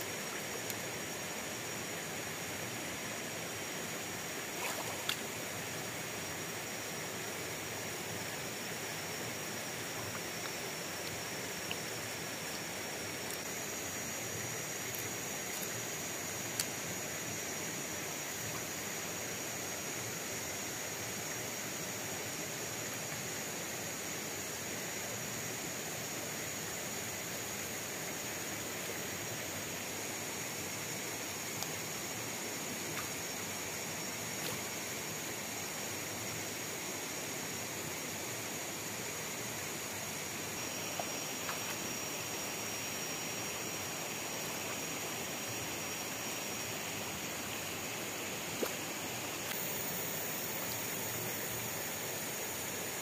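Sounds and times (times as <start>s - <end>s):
shallow stream rushing: 0.0s - 20.7s, 30.4s - 53.0s
small water splashes: 4.5s - 5.4s, 48.5s - 50.9s.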